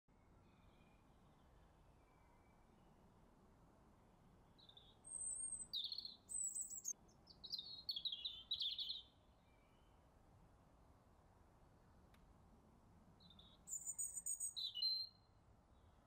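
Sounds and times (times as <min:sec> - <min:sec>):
songbird singing: 0:00.1 - 0:03.0, 0:04.5 - 0:10.0, 0:13.2 - 0:16.0
faint outdoor background noise: 0:00.1 - 0:16.0.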